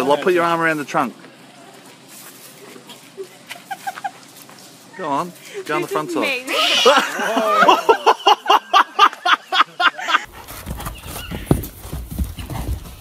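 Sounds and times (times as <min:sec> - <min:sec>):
person laughing hard: 0:03.2 - 0:04.2, 0:06.5 - 0:10.3
horse hoofbeats on dirt: 0:10.3 - 0:13.0.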